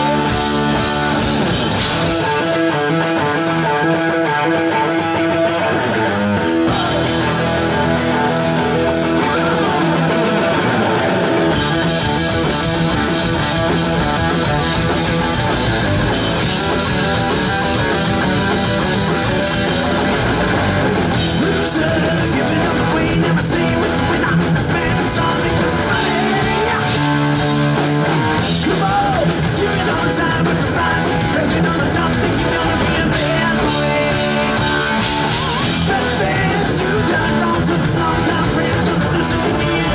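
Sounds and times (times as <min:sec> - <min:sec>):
live heavy metal band: 0:00.0 - 0:39.9
person singing: 0:02.2 - 0:11.0, 0:21.3 - 0:27.4, 0:28.6 - 0:39.9.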